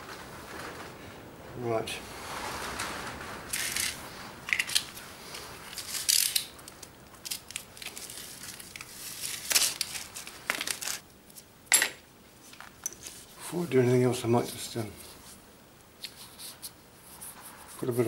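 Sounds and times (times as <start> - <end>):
hands rustling and crinkling: 2.2 - 11.5.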